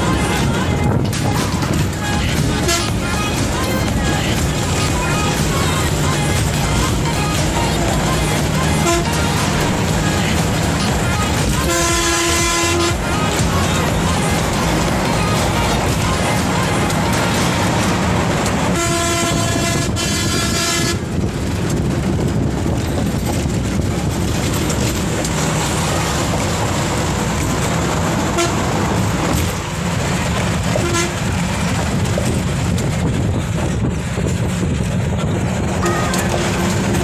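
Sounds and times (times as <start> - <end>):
bus interior rumble: 0.0 - 37.0
vehicle horn: 2.0 - 3.4, 8.6 - 9.5, 11.1 - 13.5, 18.7 - 21.1, 28.3 - 28.7, 30.7 - 31.3, 35.8 - 37.0.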